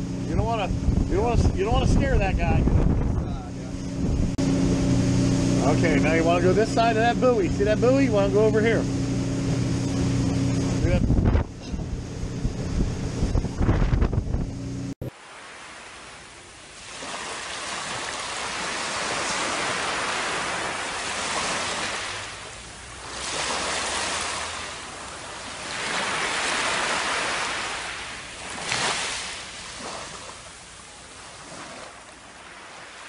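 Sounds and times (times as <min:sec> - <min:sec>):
surf washing up beach: 0:00.0 - 0:03.7, 0:04.3 - 0:11.4, 0:15.0 - 0:33.0
sharp water splash: 0:15.0 - 0:33.0.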